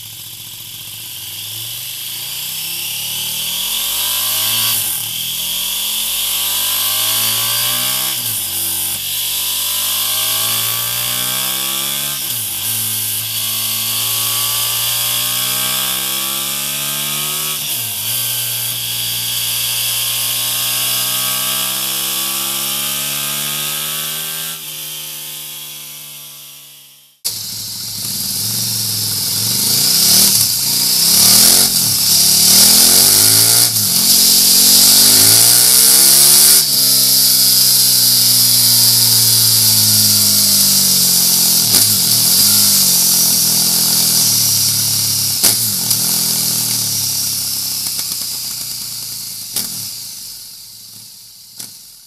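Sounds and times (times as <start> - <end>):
motorcycle engine revving: 0.0 - 51.8
steady high hiss: 27.3 - 52.0.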